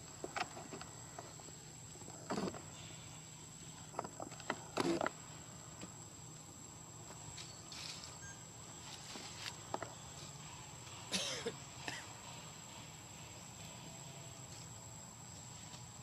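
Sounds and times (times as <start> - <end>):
high-pitched insect drone: 0.6 - 4.1, 4.8 - 16.0
short cough-like sound: 11.1 - 12.1.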